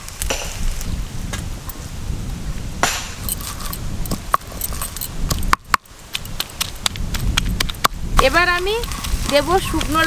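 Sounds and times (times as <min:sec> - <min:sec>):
sharp stone clicks: 0:02.8 - 0:10.0
stone rumbling on stone: 0:02.8 - 0:10.0.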